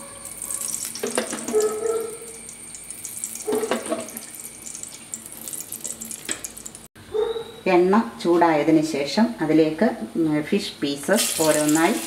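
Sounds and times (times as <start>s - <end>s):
oil crackling in a frying pan: 0.2s - 6.9s, 11.2s - 12.0s.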